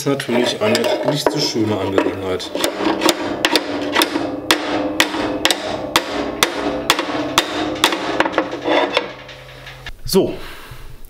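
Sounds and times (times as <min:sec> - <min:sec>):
hammer blows on steel: 0:02.5 - 0:09.8.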